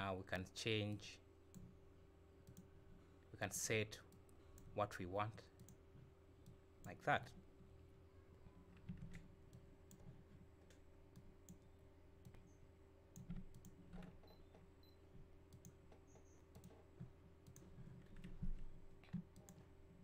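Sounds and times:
mouse and keyboard clicks: 13.2 - 14.1.

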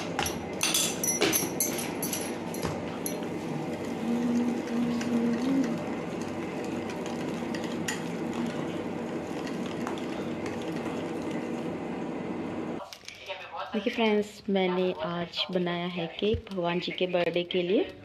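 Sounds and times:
utensil clinking against bowl: 0.0 - 3.3, 4.9 - 8.6
batter stirred in a bowl: 1.6 - 11.8.

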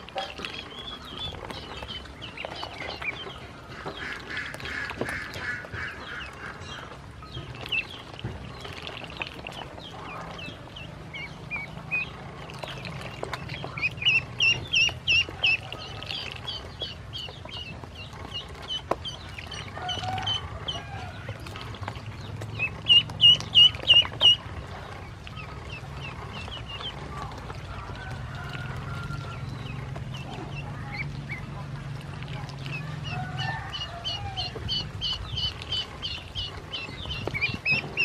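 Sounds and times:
ducklings peeping: 0.0 - 38.0.

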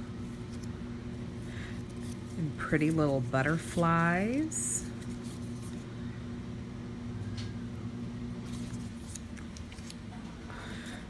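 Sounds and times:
steady low hum: 0.0 - 11.0
card rustling: 1.4 - 3.9, 8.4 - 10.2.

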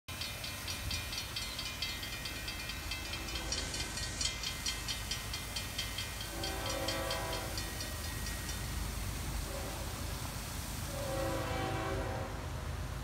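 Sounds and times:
crossing warning bell ringing: 0.1 - 9.3.

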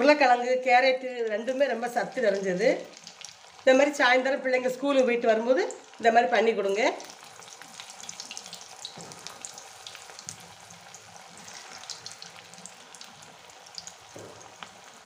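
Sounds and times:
food deep-frying in oil: 0.0 - 15.0
oil crackles and pops: 1.3 - 3.7, 6.7 - 15.0.

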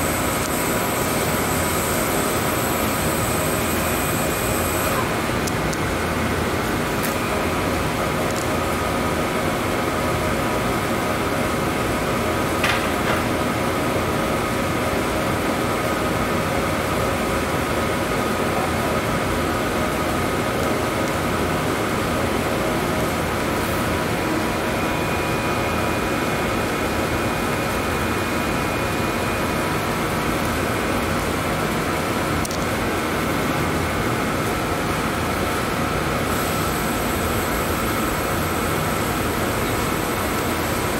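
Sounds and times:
ventilation air rush: 15.7 - 40.9.

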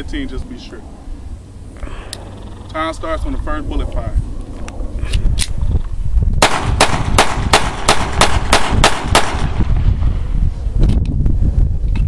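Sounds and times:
pistol shots: 6.4 - 9.8.

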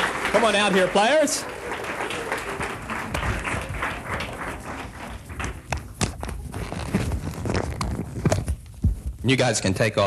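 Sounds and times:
audience applause: 0.0 - 6.0.

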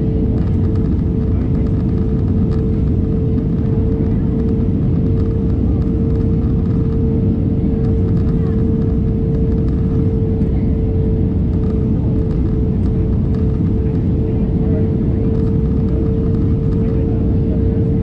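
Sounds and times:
airliner cabin rumble: 0.0 - 18.0.

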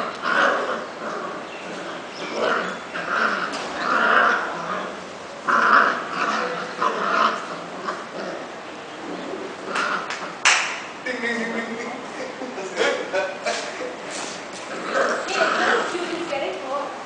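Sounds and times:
puppies growling and yipping: 0.0 - 10.4, 14.2 - 16.4.

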